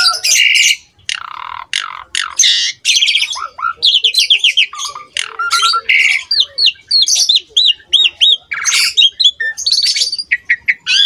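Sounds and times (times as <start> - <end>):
starling singing: 0.0 - 11.0.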